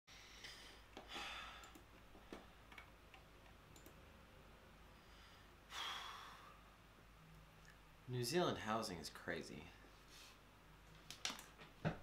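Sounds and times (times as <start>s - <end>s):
soft breath: 4.9s - 6.8s, 9.7s - 10.5s.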